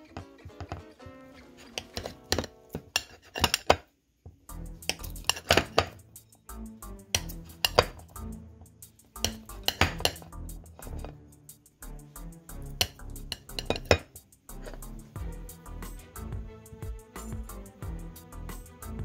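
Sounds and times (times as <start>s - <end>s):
knife clicking on a ceramic plate: 1.7s - 3.8s, 7.2s - 8.0s, 9.2s - 10.3s, 12.8s - 14.1s.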